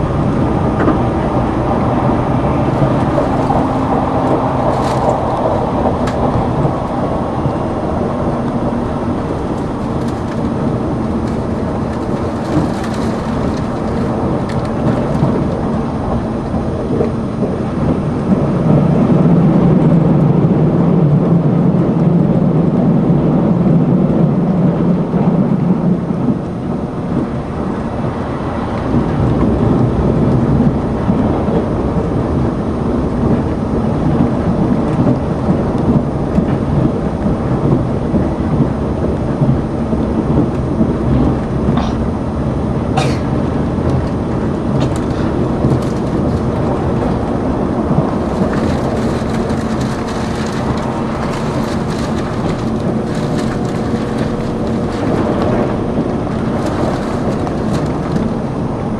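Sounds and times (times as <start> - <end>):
train wheels rumbling on rail: 0.0 - 58.9.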